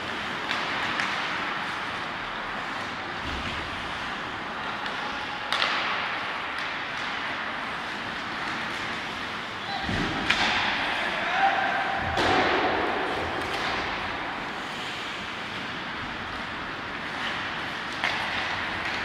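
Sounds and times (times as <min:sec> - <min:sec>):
heavy thuds against rink boards: 0:09.8 - 0:11.0, 0:11.9 - 0:14.4
hiss of skates: 0:14.4 - 0:16.4.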